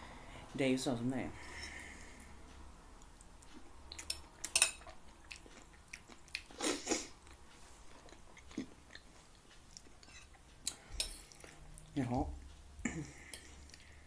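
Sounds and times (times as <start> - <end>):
person chewing: 3.0 - 14.0
fork scraping a plate: 10.0 - 10.4.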